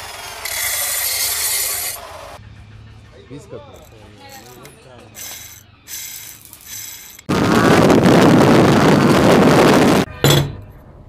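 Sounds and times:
bicycle freewheel ratchet clicking: 5.2s - 7.3s
wind rushing over microphone: 7.3s - 10.1s.

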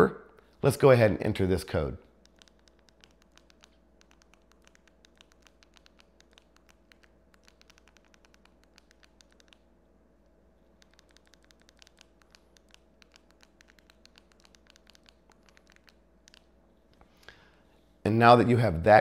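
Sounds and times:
faint rapid clicking: 2.2s - 9.7s, 10.8s - 17.1s.

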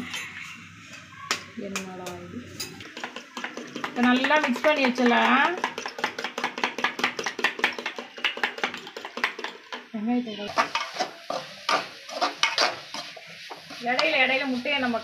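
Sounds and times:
eggs beaten in plastic tub: 2.8s - 9.8s
spatula scraping metal pan: 2.9s - 6.3s, 10.5s - 14.8s.

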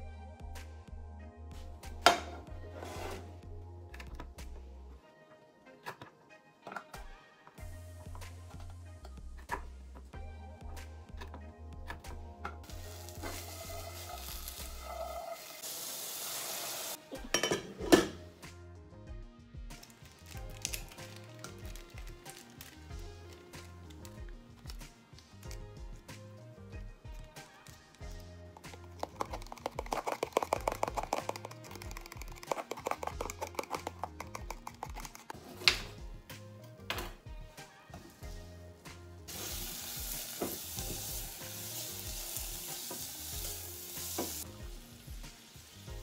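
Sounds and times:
background music with bass line: 0.0s - 5.0s, 7.0s - 15.2s, 17.0s - 46.0s
food sizzling in a pan: 12.6s - 17.6s, 39.3s - 46.0s
water pouring: 12.8s - 17.0s, 28.6s - 35.2s
glass pot lid clattering: 17.3s - 18.2s
utensil clicking on plastic container: 28.6s - 35.4s.

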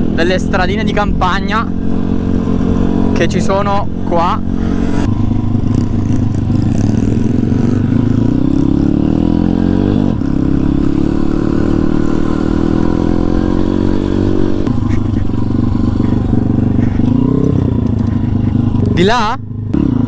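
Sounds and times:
pit bike engine running: 0.0s - 20.0s.

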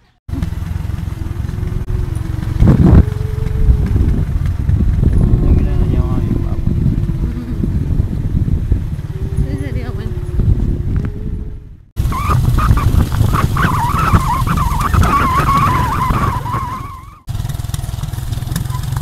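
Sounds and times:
motorcycle engine rumble: 0.0s - 19.0s
wind on microphone: 0.3s - 17.3s
wavering high squeal: 0.8s - 4.4s, 9.0s - 17.3s.

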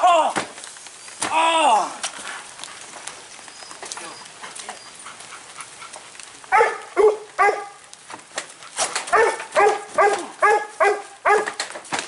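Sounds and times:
dog barking: 6.5s - 7.8s, 9.1s - 11.6s.

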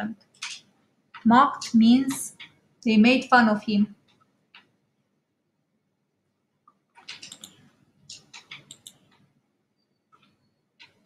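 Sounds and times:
computer mouse clicking: 4.0s - 4.7s, 6.7s - 9.3s, 10.1s - 11.0s.

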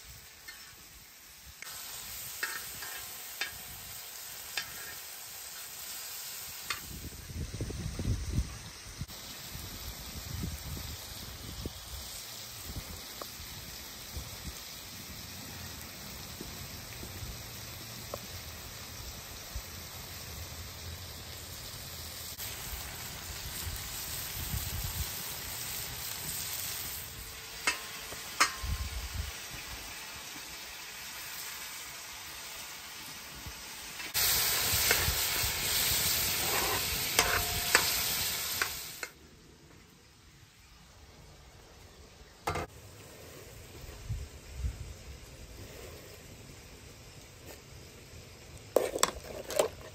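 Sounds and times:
food sizzling in a pan: 0.0s - 39.3s.

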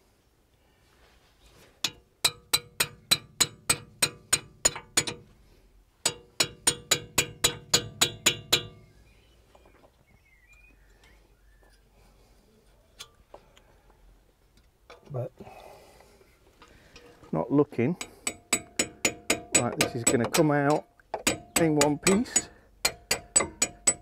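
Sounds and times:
hammer tapping metal chisel: 1.8s - 5.3s, 6.0s - 8.8s, 18.0s - 24.0s.

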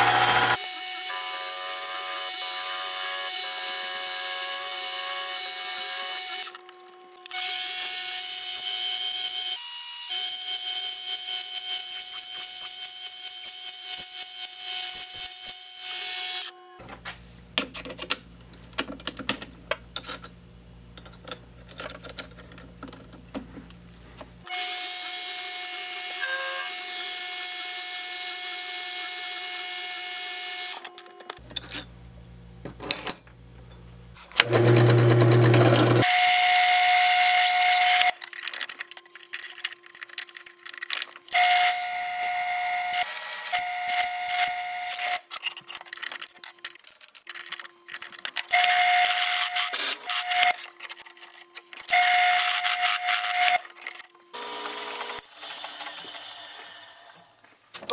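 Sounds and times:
lathe running: 0.0s - 0.6s, 34.4s - 36.0s
clicks and handling noise: 16.8s - 24.4s, 30.8s - 31.9s, 38.0s - 41.4s, 44.4s - 56.3s, 57.2s - 57.9s
drill press drilling: 34.4s - 38.1s
drill boring into brass: 41.3s - 45.3s.

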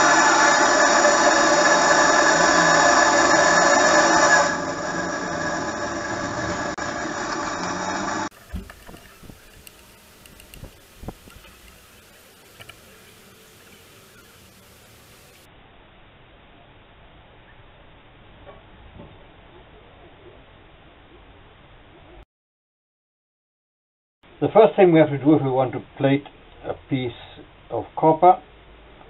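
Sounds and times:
gas torch flame: 0.0s - 12.9s.

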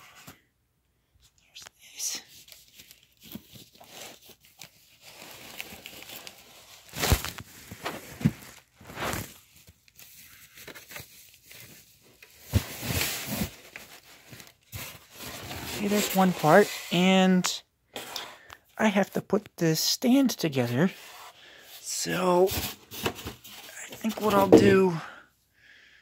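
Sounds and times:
plastic packaging rustling: 2.3s - 16.8s.

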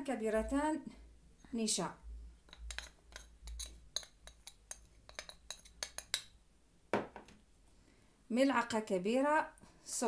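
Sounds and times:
spoon clinking against bowl: 2.5s - 6.4s.

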